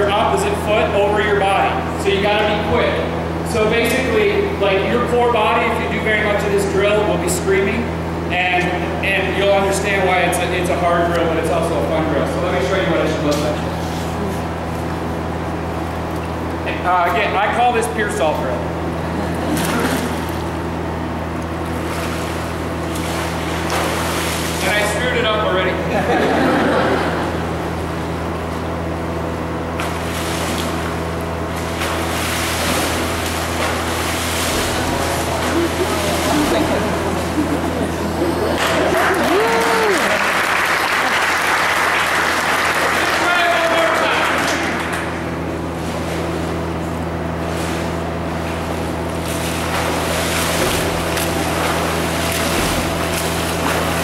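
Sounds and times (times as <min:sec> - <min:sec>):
steady low hum: 0:00.0 - 0:54.0
swimmer splashing: 0:19.0 - 0:54.0
water splashing from swimmer: 0:21.7 - 0:24.9, 0:29.8 - 0:36.8, 0:47.5 - 0:54.0.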